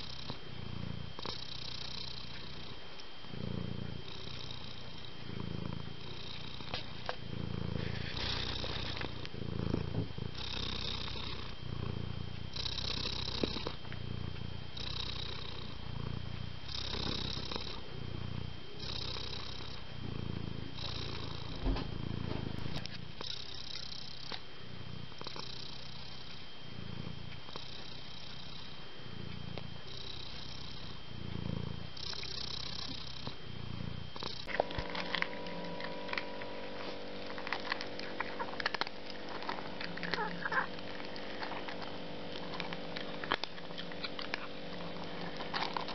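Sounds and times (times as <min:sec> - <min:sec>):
cat purring: 0:00.0 - 0:45.9
steady hum: 0:00.0 - 0:45.9
small clicks and crackles: 0:34.2 - 0:45.9.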